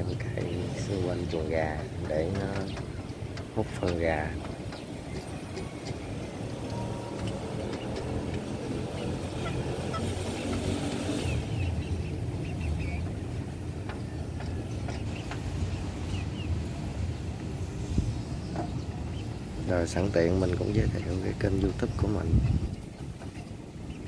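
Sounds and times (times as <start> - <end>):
chickens chirping faintly: 0.0 - 24.0.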